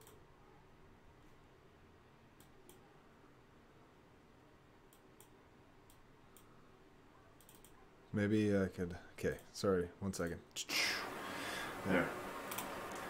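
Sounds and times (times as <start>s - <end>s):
faint computer mouse clicks: 4.9s - 6.5s, 7.4s - 7.8s.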